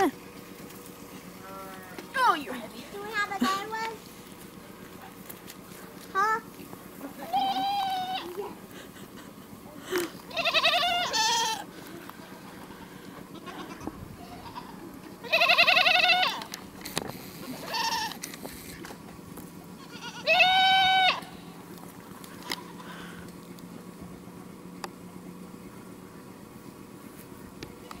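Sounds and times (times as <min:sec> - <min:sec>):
young goat bleating: 0:07.1 - 0:08.6, 0:10.3 - 0:11.7, 0:12.5 - 0:16.6, 0:17.4 - 0:18.2, 0:19.8 - 0:21.5, 0:22.4 - 0:23.1.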